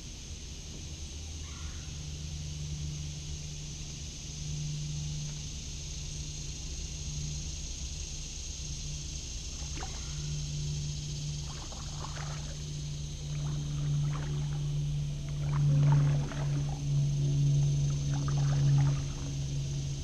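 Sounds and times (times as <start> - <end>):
steady low hum: 0.0 - 20.0
paddle splashes and drips: 9.4 - 20.0.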